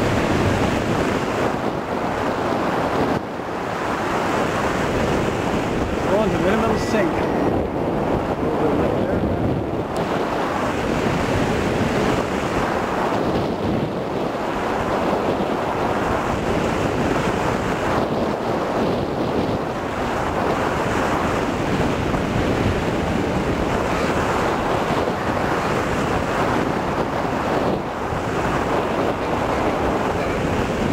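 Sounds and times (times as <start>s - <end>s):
wind buffeting microphone: 0.0s - 30.9s.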